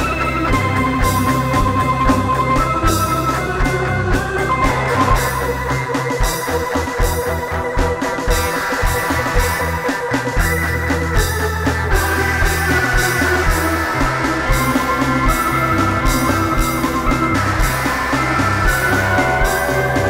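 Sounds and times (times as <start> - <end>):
bass line: 0.0 - 20.0
instrumental rock jam: 0.0 - 20.0
keyboard chords: 0.0 - 20.0
cymbals: 8.3 - 20.0.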